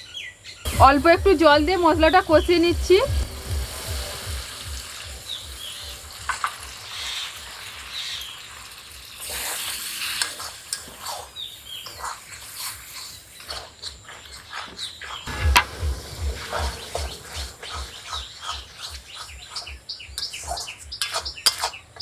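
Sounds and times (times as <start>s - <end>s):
paste sizzling in a pan: 0.7s - 22.0s
metal spatula scraping a wok: 5.7s - 22.0s.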